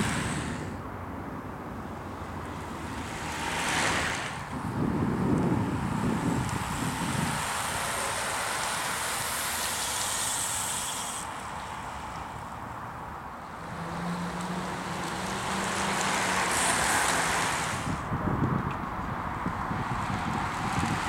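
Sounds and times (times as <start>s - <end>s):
bicycle tyres hissing on tarmac: 0.0s - 0.8s, 2.8s - 12.8s, 13.5s - 18.2s.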